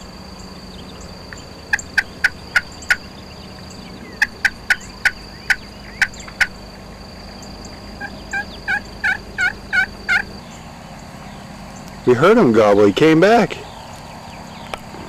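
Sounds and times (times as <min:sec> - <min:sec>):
turkey clucks: 0:01.0 - 0:06.7, 0:07.6 - 0:10.6
turkey yelps: 0:01.7 - 0:03.2, 0:04.0 - 0:06.6, 0:08.0 - 0:10.3.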